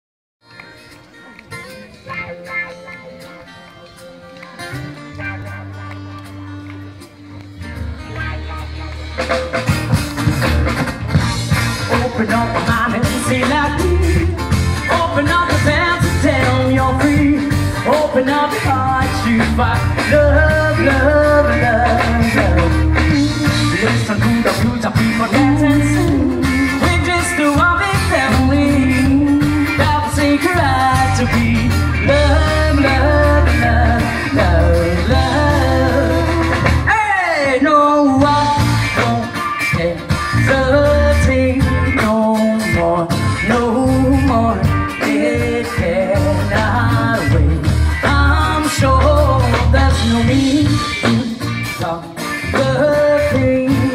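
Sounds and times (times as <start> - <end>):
electric and acoustic guitars: 0.4 - 53.9
bass line: 1.6 - 53.9
person singing: 11.7 - 53.9.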